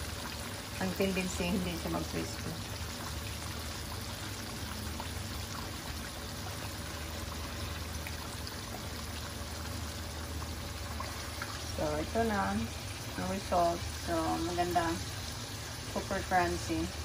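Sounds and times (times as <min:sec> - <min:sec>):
chicken frying in bubbling oil: 0:00.0 - 0:17.0
low steady hum: 0:00.0 - 0:17.0.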